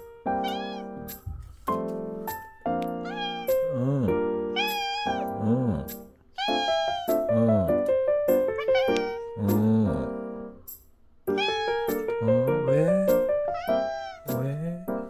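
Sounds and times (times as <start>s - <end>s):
background music of held notes: 0.0s - 15.0s
cat meowing: 0.3s - 1.2s, 2.9s - 5.4s, 6.4s - 7.7s, 8.4s - 9.7s, 11.3s - 15.0s.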